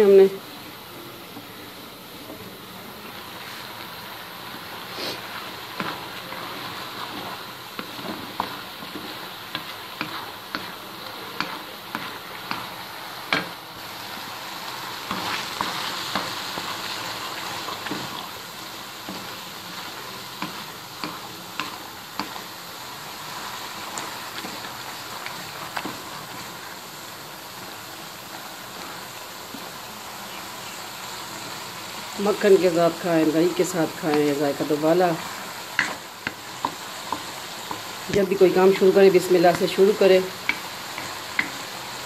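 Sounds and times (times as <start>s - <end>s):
greens sizzling in a pot: 0.0s - 42.0s.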